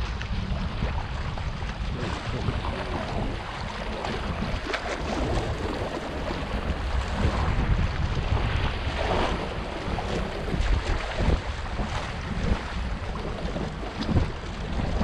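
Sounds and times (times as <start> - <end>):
waves lapping against rocks: 0.0 - 15.0
wind buffeting microphone: 0.0 - 15.0.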